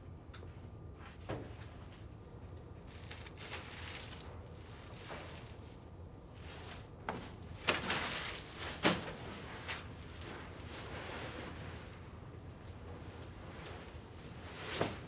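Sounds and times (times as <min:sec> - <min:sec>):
plastic wrapping rustling: 0:02.9 - 0:11.3.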